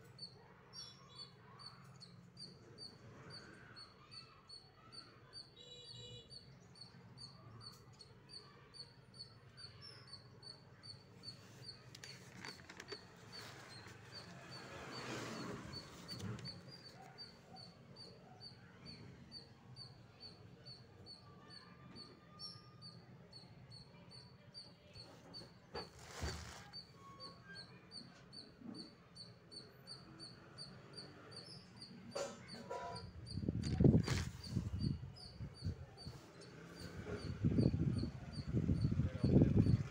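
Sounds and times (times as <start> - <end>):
notebook pages turning: 12.0 - 16.6, 25.9 - 26.7, 33.7 - 34.4.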